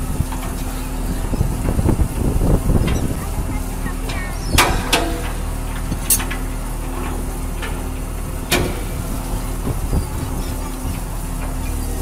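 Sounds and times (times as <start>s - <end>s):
boat engine drone: 0.0s - 12.0s.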